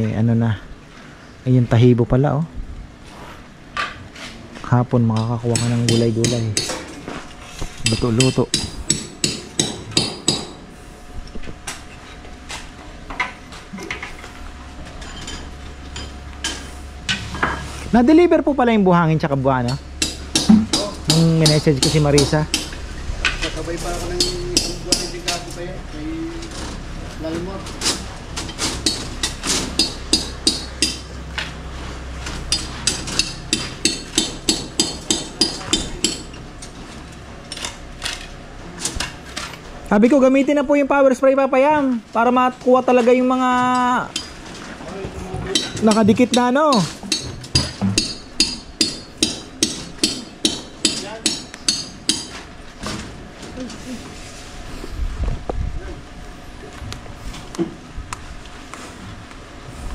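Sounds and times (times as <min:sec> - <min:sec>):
hammer striking metal: 0:05.2 - 0:06.8, 0:07.8 - 0:10.6, 0:19.7 - 0:22.8, 0:24.2 - 0:25.4, 0:28.8 - 0:31.1, 0:32.5 - 0:36.3, 0:45.5 - 0:52.4
hammer knocks: 0:20.4 - 0:22.7.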